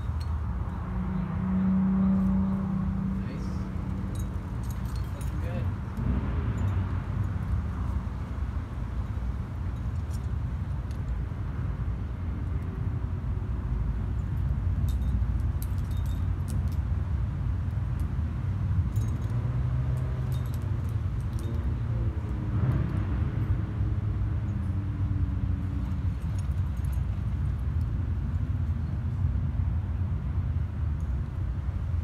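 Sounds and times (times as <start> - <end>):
metallic clinking of climbing gear: 0.0 - 0.8, 3.2 - 8.0, 9.5 - 11.3, 14.0 - 18.2, 18.8 - 23.5, 24.4 - 29.4.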